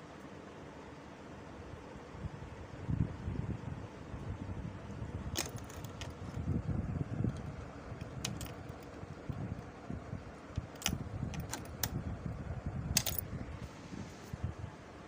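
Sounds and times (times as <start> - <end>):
sharp metal clicks and taps: 8.0 - 9.0, 10.5 - 12.0, 13.0 - 13.2.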